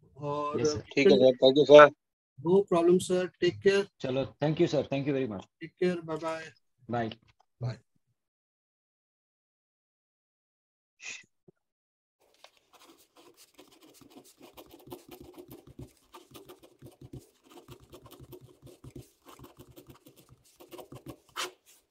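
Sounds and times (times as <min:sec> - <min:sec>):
ballpoint pen scratching on paper: 0:12.4 - 0:21.9.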